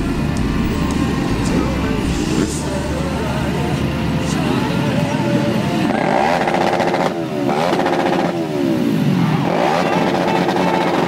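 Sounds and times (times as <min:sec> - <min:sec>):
motorcycle engines idling: 0:00.0 - 0:11.0.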